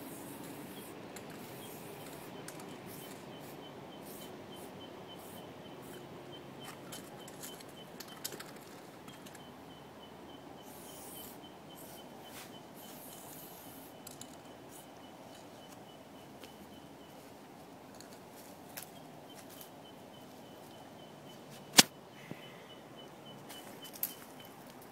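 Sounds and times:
spray paint can hissing: 0.1 - 2.3, 2.9 - 5.4, 10.6 - 12.0, 12.8 - 14.2
sharp click: 21.7 - 21.9.

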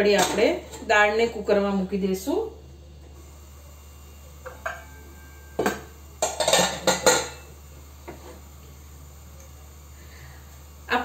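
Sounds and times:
utensils and dishes clinking: 5.6 - 7.5.

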